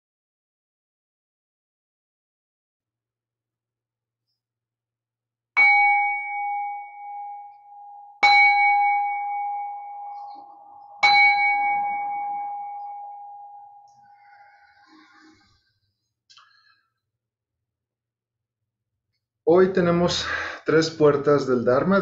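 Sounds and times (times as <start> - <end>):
meditation bowl bell ringing: 5.6 - 15.2.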